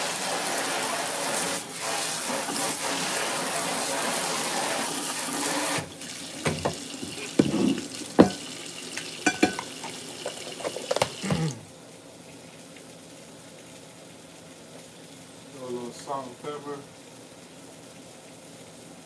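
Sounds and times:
tap running into sink: 5.4 - 11.6
frying pan knocks and clanks: 6.4 - 8.4, 9.2 - 9.7.

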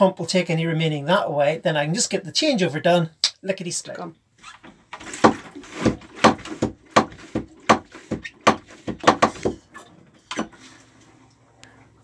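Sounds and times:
manual toilet pump strokes: 4.4 - 11.3.

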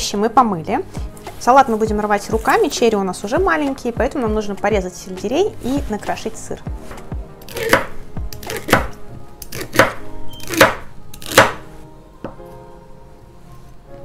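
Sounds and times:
soft background music: 0.0 - 14.0
knife chopping on wooden board: 6.9 - 11.6.

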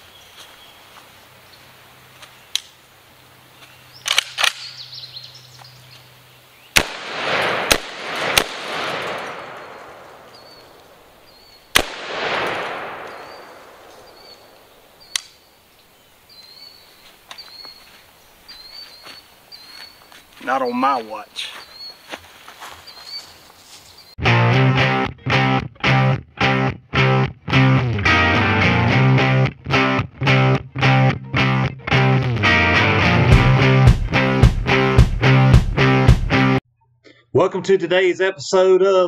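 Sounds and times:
sharp clicks: 2.5 - 2.8, 4.0 - 4.8, 11.8 - 15.4
shotgun blasts with rolling echo: 6.8 - 11.1, 11.7 - 15.0.

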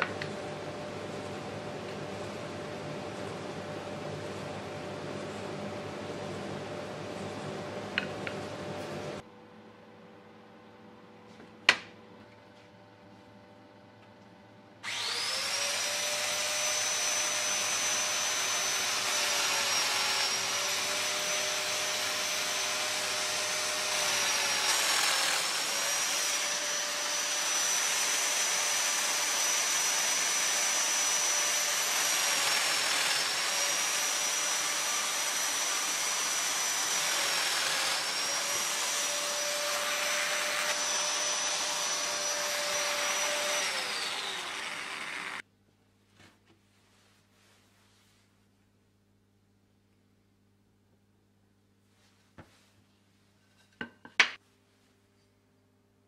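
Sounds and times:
joiner cutter whining: 14.8 - 45.4.

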